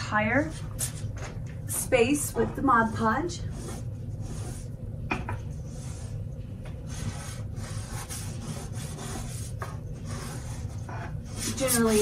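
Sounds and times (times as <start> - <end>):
paintbrush scratching on wood: 2.5 - 4.7, 6.9 - 12.0.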